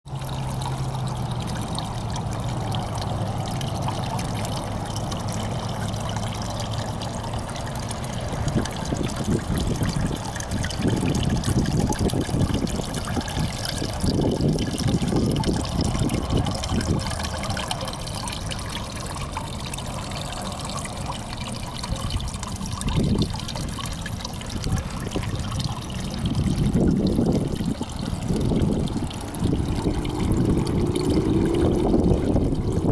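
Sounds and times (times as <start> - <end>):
fountain water trickling and splashing: 0.0 - 32.9
low rumbles: 0.1 - 32.9.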